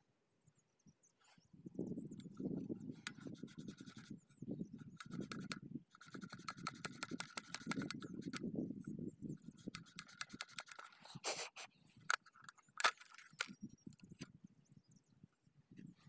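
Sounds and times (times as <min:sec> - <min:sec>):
sharp irregular clicks: 0:03.0 - 0:04.1, 0:04.9 - 0:08.5, 0:09.6 - 0:11.0.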